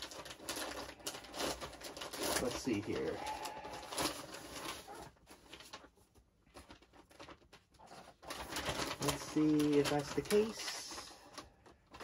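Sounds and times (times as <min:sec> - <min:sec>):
packaging rustling and crinkling: 0:00.0 - 0:12.0.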